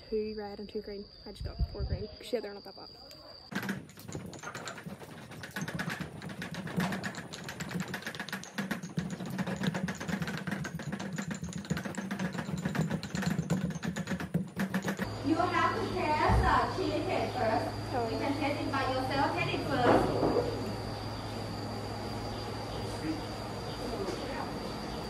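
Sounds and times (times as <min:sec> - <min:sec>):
stone pestles pounding: 0:03.5 - 0:15.1.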